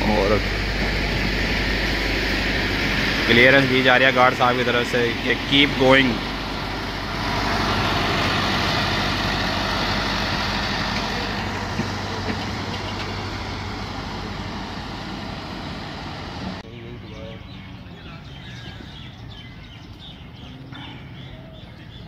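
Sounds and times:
train wheels rumbling on rails: 0.0s - 16.6s.

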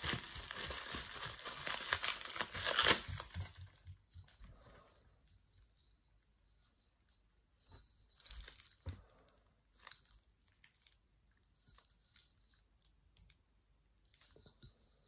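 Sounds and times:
plastic packaging crinkling: 0.0s - 3.8s, 8.2s - 11.9s.

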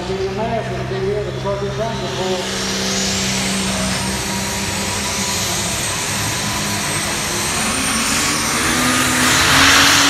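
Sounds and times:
tractor engine running loud: 0.0s - 10.0s
turbocharger whistle: 2.2s - 10.0s.

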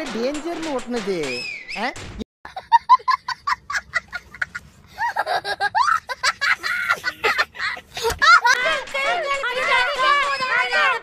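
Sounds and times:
boy laughing: 2.5s - 9.0s.

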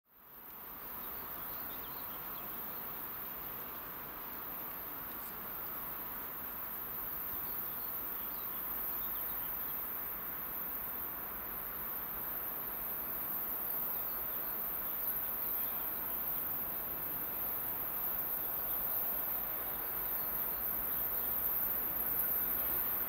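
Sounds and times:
high-pitched insect buzzing: 11.9s - 23.0s.

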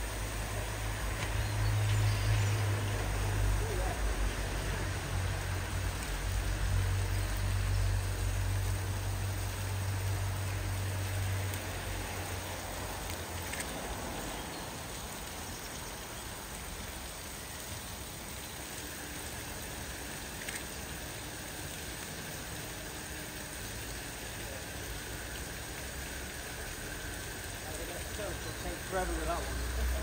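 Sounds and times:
steam escaping: 0.0s - 30.0s.

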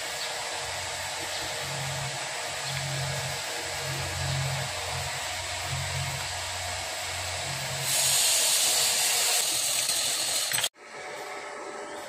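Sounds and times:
metal lathe hissing: 0.0s - 10.8s
low hum: 0.4s - 8.0s.

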